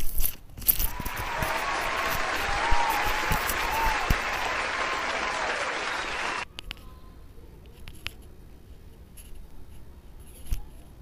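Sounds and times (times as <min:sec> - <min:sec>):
applause: 0:00.9 - 0:06.5
scratchy rustles and clicks: 0:07.6 - 0:10.9.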